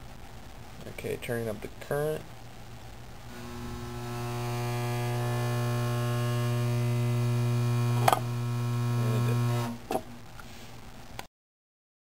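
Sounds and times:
electromagnet humming: 0:03.0 - 0:10.3.

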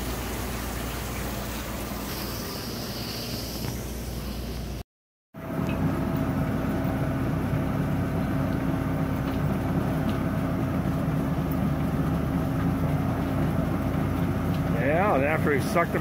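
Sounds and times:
forklift engine humming: 0:05.4 - 0:16.0.

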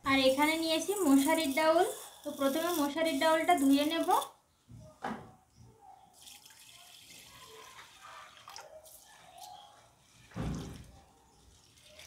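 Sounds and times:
water sloshing and dripping: 0:06.2 - 0:12.0.

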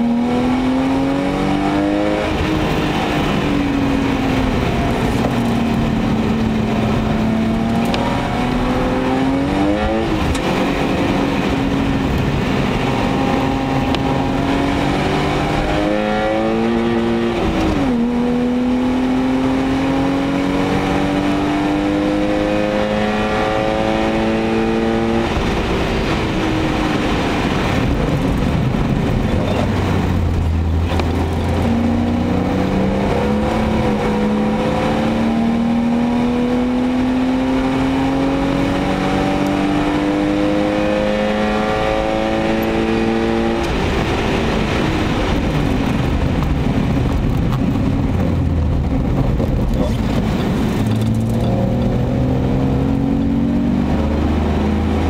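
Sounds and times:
car engine accelerating: 0:00.0 - 0:55.0
tyre and road noise: 0:00.0 - 0:55.0.

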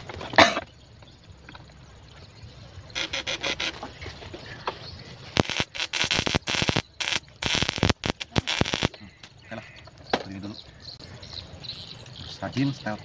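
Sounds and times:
electric crackle: 0:05.3 - 0:09.0.

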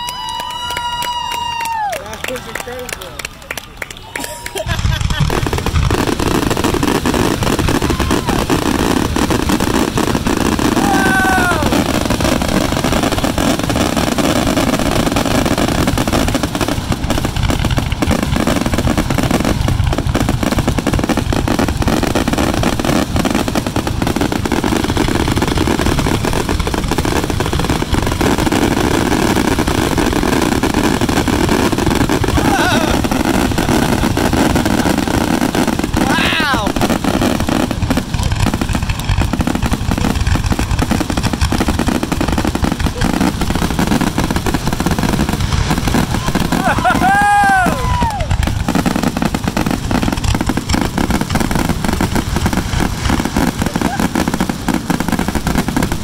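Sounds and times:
falling firework whistle: 0:00.0 - 0:02.1, 0:04.0 - 0:13.2, 0:28.2 - 0:37.4, 0:45.6 - 0:49.3
fireworks booming and crackling: 0:00.0 - 0:56.0.

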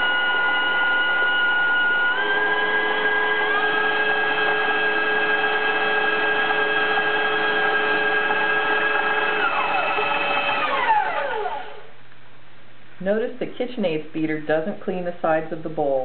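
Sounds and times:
stand mixer motors whining: 0:00.0 - 0:12.0.

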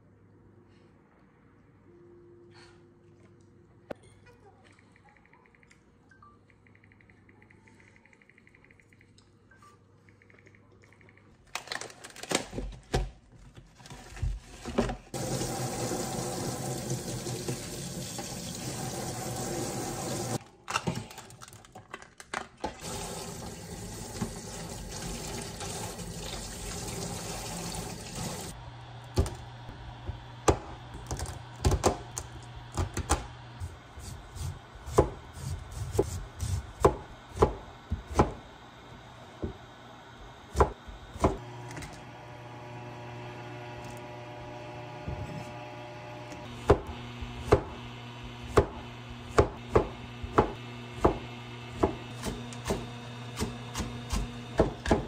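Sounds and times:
tap water running into sink: 0:15.2 - 0:20.4, 0:22.8 - 0:28.5
cleaver chopping on cutting board: 0:53.4 - 0:55.0.

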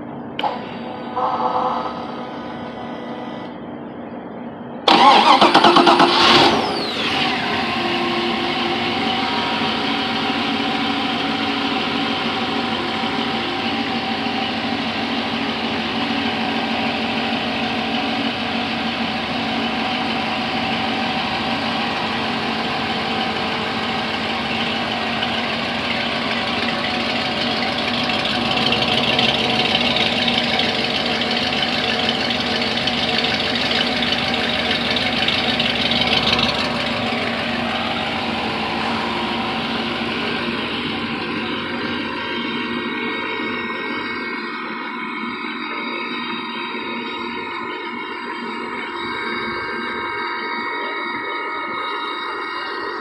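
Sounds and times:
boat engine starting and idling: 0:04.9 - 0:44.2.

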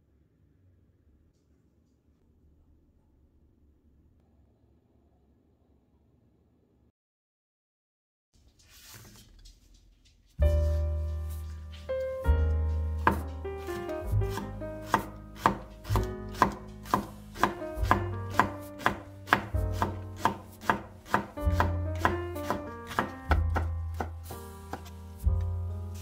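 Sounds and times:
knife chopping on wooden board: 0:12.9 - 0:26.0.

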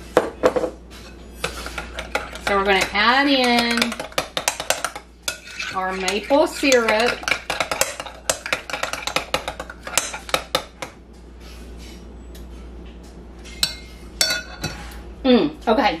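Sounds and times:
metal spoon clinking on glass bowl: 0:13.6 - 0:14.7.

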